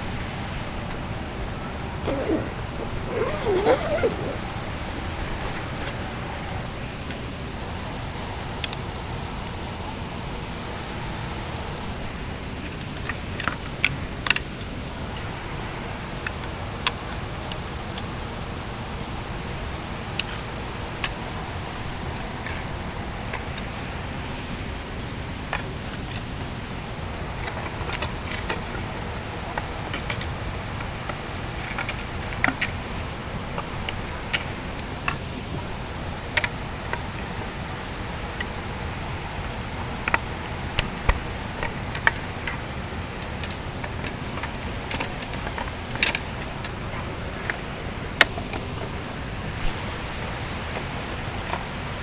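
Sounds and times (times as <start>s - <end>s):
flowing water rushing: 0.0s - 52.0s
metallic jingles: 2.1s - 4.5s.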